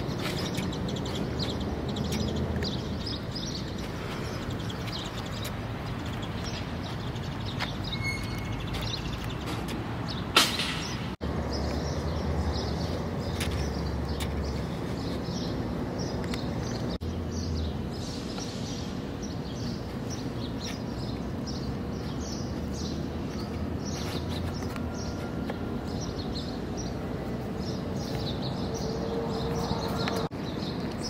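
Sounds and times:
birds chirping: 0.0 - 31.0.

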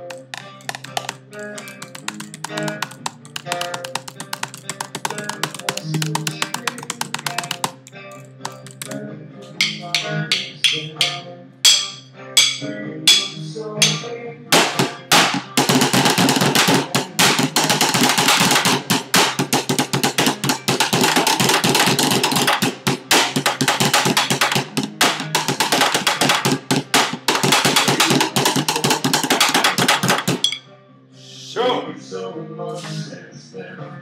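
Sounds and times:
drum kit played loudly: 0.1 - 7.7, 13.8 - 30.6.

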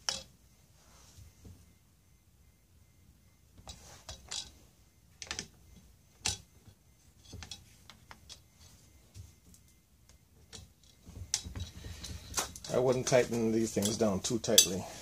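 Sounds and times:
metal tools clicking and tapping: 0.0 - 0.3, 4.1 - 4.5, 6.2 - 6.5, 7.2 - 8.6, 10.4 - 14.8.

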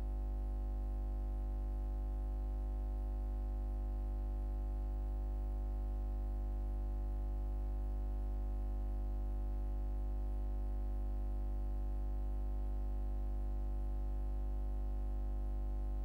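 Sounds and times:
buzzy electrical hum: 0.0 - 0.6, 15.0 - 16.0.

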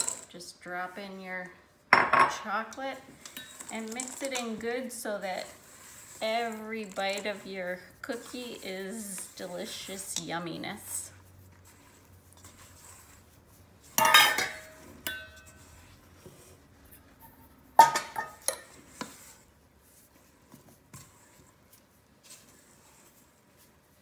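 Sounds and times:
metal bowl clanking: 13.8 - 15.7, 17.2 - 18.8.

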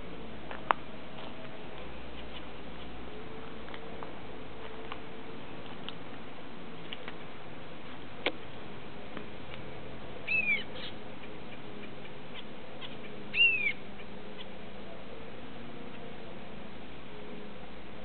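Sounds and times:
finches whistling calls: 10.3 - 11.0, 12.3 - 14.5.

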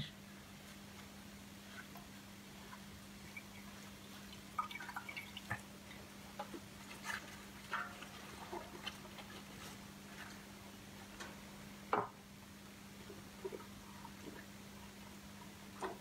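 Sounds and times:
faint water drips: 1.7 - 11.4.

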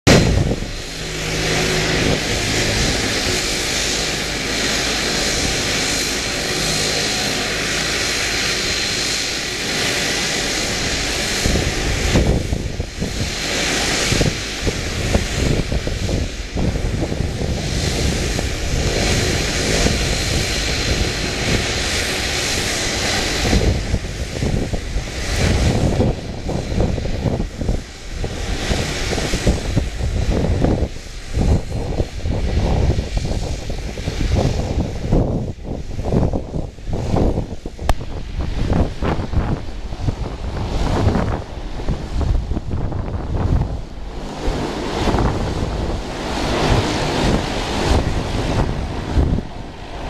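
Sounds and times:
jet engines whining: 0.0 - 50.0
wind buffeting microphone: 0.0 - 50.0.

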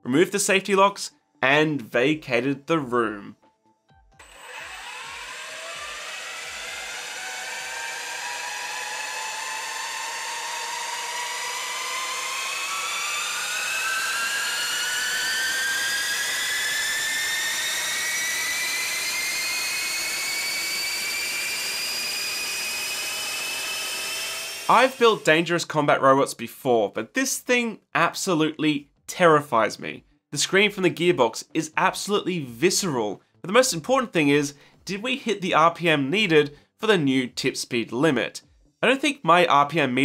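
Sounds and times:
robot weapon spinning up: 4.2 - 25.4.

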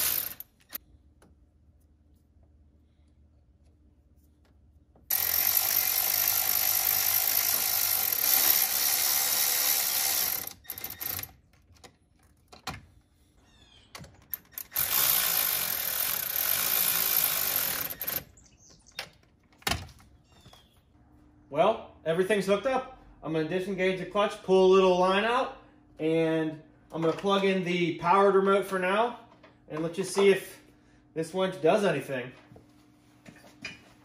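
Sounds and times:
electric ratchet running: 0.0 - 0.8, 5.1 - 11.4, 14.3 - 18.3.

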